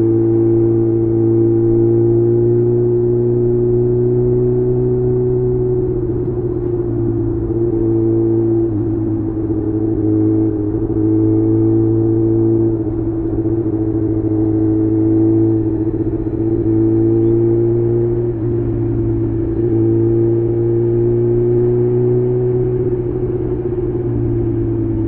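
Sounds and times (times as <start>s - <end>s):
motorcycle engine cruising: 0.0s - 25.0s.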